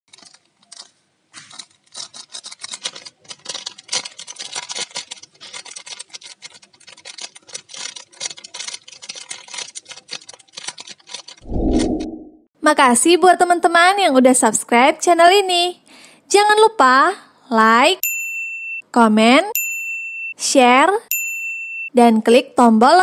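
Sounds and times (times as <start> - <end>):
plastic sachet crinkling: 1.5 - 11.4.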